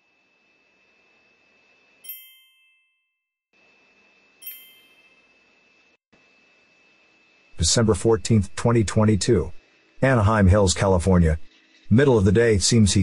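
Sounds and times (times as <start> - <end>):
bell-like chime strikes: 2.1 - 3.2, 4.4 - 5.4.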